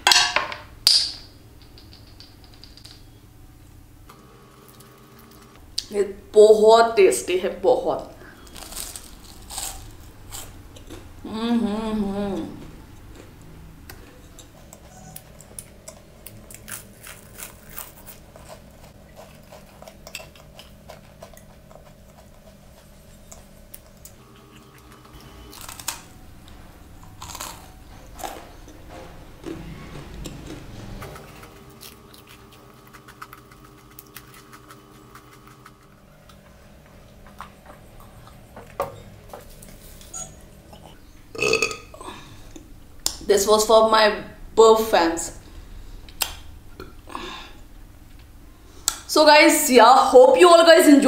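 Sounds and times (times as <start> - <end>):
faint steady hum: 0.0 - 51.0
chewing pastry crunches: 8.4 - 11.1, 14.5 - 26.1, 27.1 - 28.5, 31.2 - 36.4.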